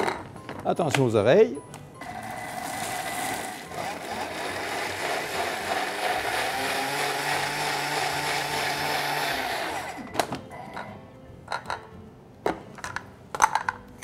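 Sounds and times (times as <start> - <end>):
food processor grinding: 2.0 - 10.0.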